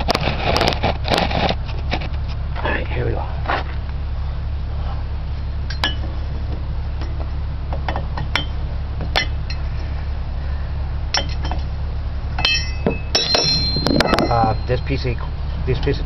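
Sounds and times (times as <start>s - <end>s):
steady low hum: 0.0s - 16.0s
metal tools clinking: 11.1s - 11.7s, 12.4s - 15.4s.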